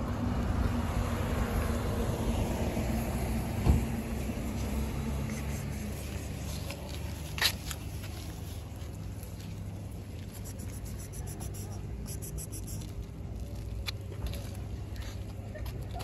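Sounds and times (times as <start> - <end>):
vehicle engine rumbling: 0.0 - 16.0.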